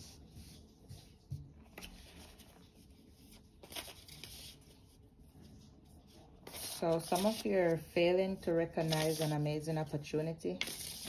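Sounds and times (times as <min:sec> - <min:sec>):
cards rustling: 0:01.6 - 0:04.7, 0:06.4 - 0:07.9, 0:08.8 - 0:09.4.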